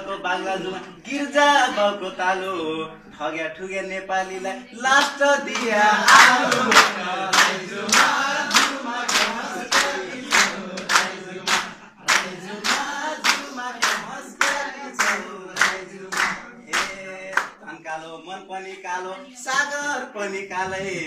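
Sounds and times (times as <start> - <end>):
voices singing along: 0.0 - 21.0
hands clapping in rhythm: 4.9 - 17.7.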